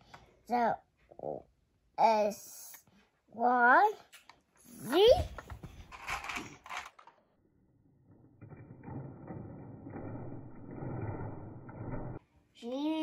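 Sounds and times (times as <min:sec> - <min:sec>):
toy wheels clicking and rattling: 0:05.1 - 0:07.2.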